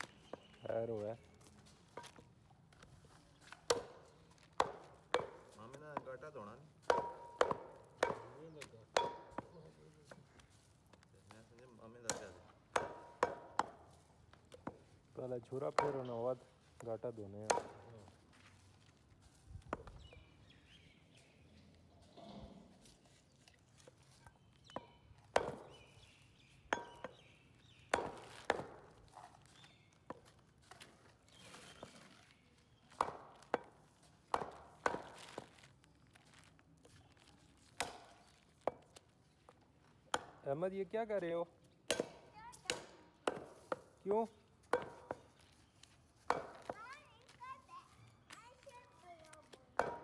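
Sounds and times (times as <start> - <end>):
cleaver chopping meat on wood: 3.6 - 6.2, 6.8 - 9.6, 12.0 - 13.9, 15.6 - 16.2, 16.8 - 17.9, 24.6 - 29.2, 32.9 - 35.4, 37.7 - 39.0, 40.1 - 40.4, 41.8 - 44.0, 44.7 - 45.2, 46.3 - 46.8, 49.8 - 50.0.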